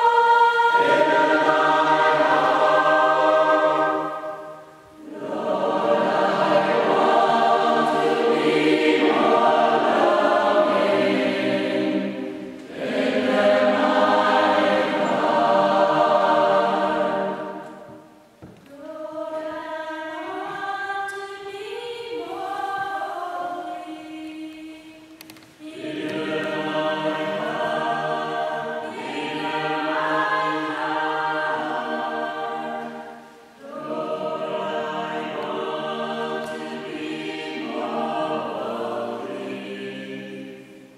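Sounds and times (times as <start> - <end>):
mixed choir singing: 0.0 - 40.9.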